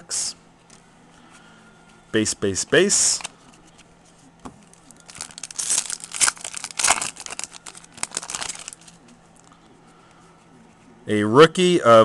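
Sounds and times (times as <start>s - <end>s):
foil wrapper crinkling and tearing: 4.7s - 9.0s.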